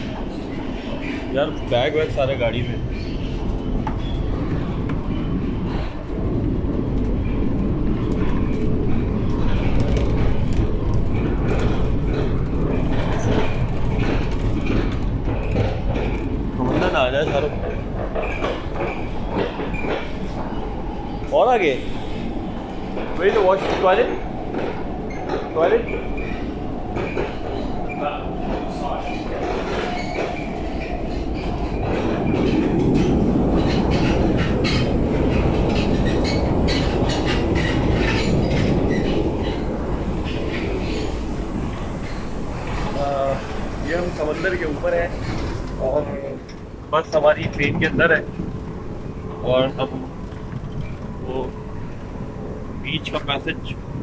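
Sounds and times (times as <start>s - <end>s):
train carriage rumbling: 0.0s - 54.0s.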